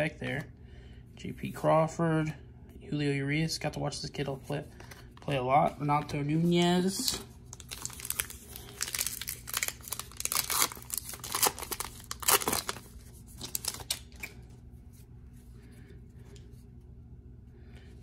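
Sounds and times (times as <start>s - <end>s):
wrapper tearing and crinkling: 6.9s - 14.4s.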